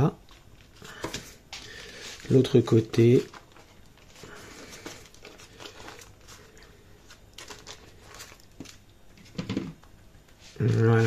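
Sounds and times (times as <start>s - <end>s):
baking parchment rustling: 0.0s - 9.5s, 10.3s - 11.0s.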